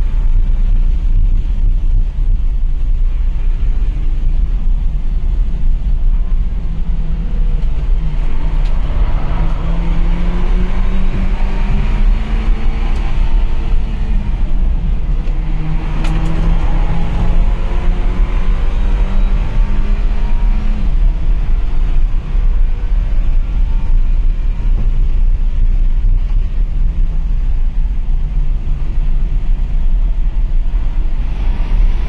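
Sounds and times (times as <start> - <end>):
car engine accelerating: 0.0 - 32.0
road and wind noise: 0.0 - 32.0.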